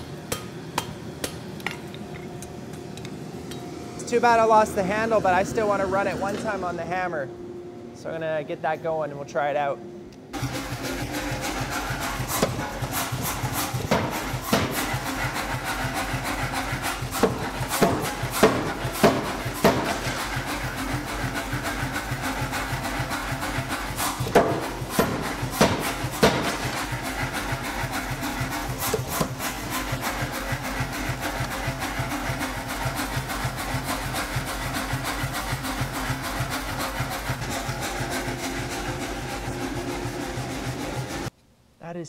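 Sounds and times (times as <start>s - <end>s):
power hammer pounding metal: 10.4s - 41.3s.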